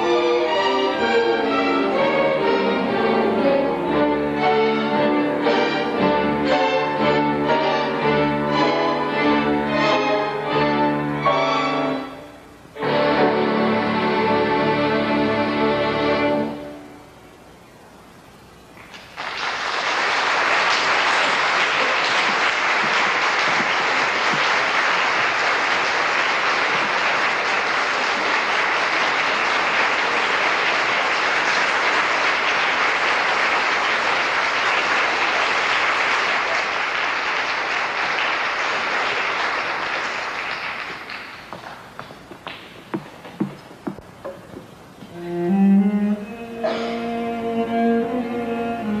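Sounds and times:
orchestra chord: 0:00.0 - 0:17.1, 0:45.2 - 0:49.0
audience applauding: 0:18.8 - 0:43.9.

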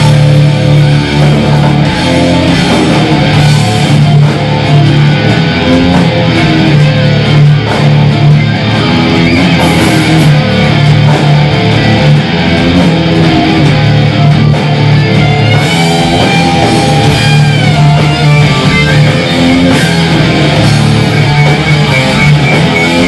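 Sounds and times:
heavy metal band playing: 0:00.0 - 0:23.0.

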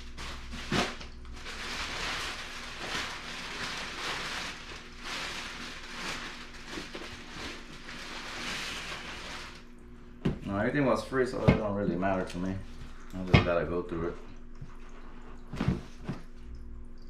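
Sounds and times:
plastic bags rustling: 0:00.0 - 0:09.7.

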